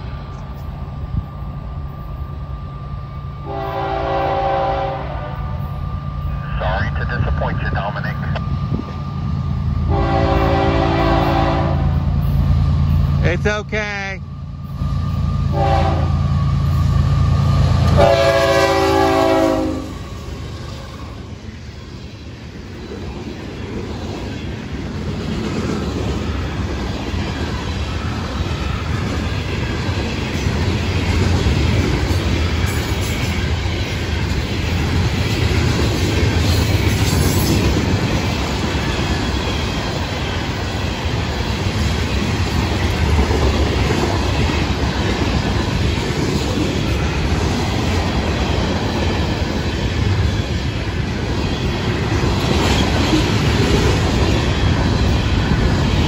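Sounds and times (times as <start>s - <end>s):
train horn blast: 3.4s - 5.7s, 9.9s - 12.0s, 15.5s - 16.2s, 17.8s - 20.0s
locomotive diesel rumble: 6.2s - 9.8s.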